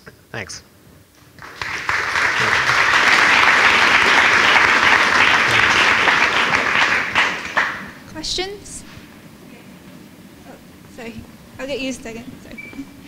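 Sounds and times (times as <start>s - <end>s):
audience applauding: 1.2s - 8.1s.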